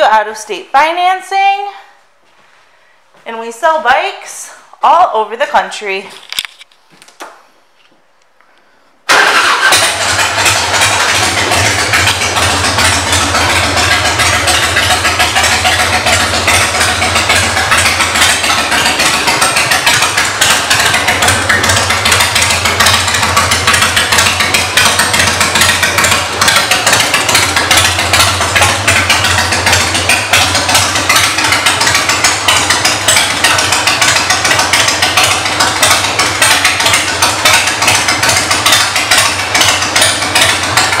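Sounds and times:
motorcycle engine idling: 0:09.1 - 0:41.0.

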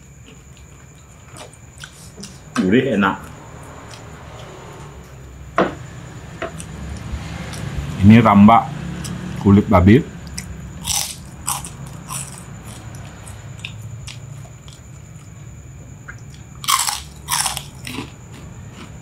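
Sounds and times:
crunching bites of crispy food: 0:10.3 - 0:12.8, 0:16.1 - 0:19.0.

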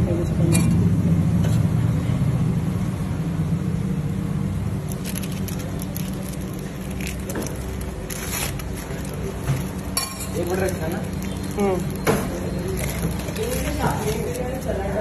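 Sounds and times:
vehicle engine rumbling: 0:00.0 - 0:15.0
paper crackling: 0:04.9 - 0:14.8.

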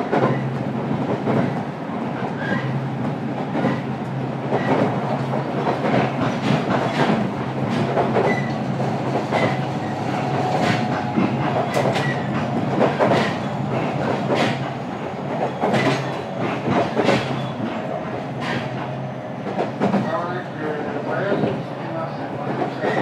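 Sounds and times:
electric train running hum: 0:00.0 - 0:23.0
wheels clacking over rail joints: 0:04.5 - 0:20.2.

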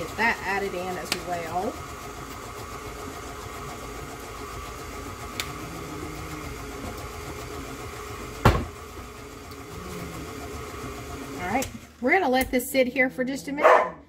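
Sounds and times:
electric mixer running: 0:00.0 - 0:12.9
loud knock: 0:08.4 - 0:08.7.

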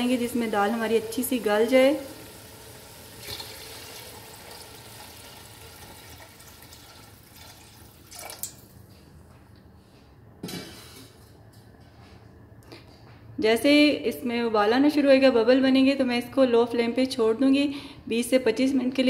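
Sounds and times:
water pouring into metal pot: 0:00.2 - 0:08.7.

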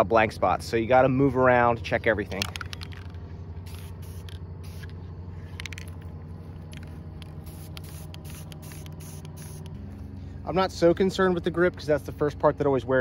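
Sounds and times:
steady low hum: 0:00.0 - 0:13.0
spray paint can hissing: 0:03.6 - 0:05.0, 0:06.7 - 0:09.8.

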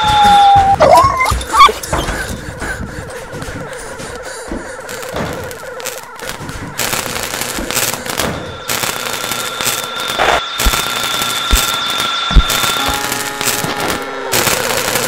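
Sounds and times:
high-pitched whine: 0:04.0 - 0:15.0
crackling static with pops: 0:04.9 - 0:15.0.

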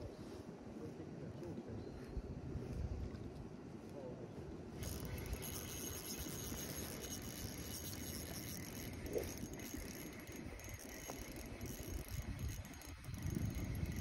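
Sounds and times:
fishing reel gears rattling: 0:04.8 - 0:14.0.

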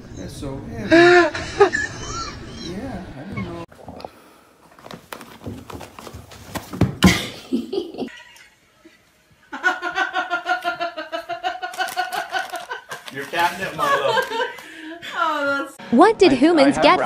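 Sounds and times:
person laughing: 0:00.9 - 0:03.6.

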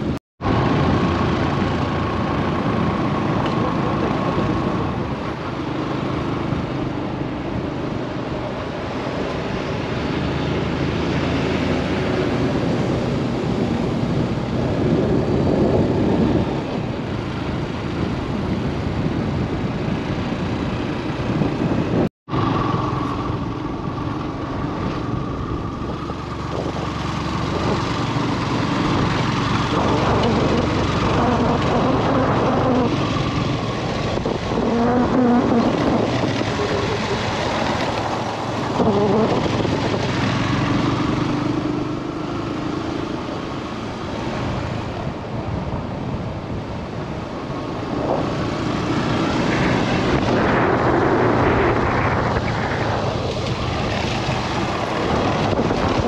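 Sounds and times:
wind rushing over microphone: 0:00.0 - 0:56.0
motorcycle engine running: 0:12.1 - 0:45.6.

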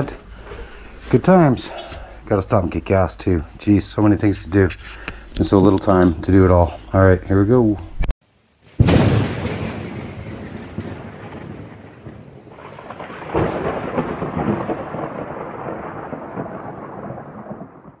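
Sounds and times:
steady rain: 0:08.2 - 0:18.0
thunder rumbling: 0:08.8 - 0:18.0.

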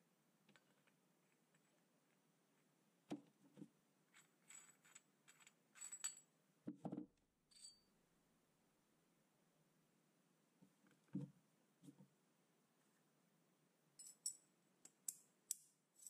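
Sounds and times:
metal clinks and knocks: 0:07.5 - 0:07.9, 0:14.0 - 0:14.4.

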